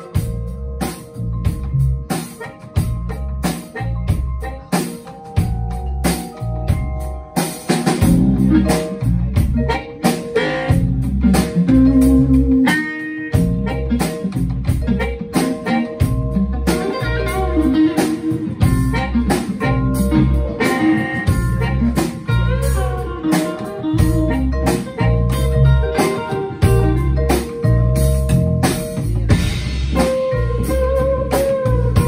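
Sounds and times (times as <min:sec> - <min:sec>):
drum kit: 0:00.0 - 0:32.0
electric guitar: 0:00.0 - 0:32.0
upright bass: 0:00.0 - 0:32.0
vibraphone: 0:00.1 - 0:31.1
harmonica: 0:08.1 - 0:27.1, 0:30.0 - 0:32.0.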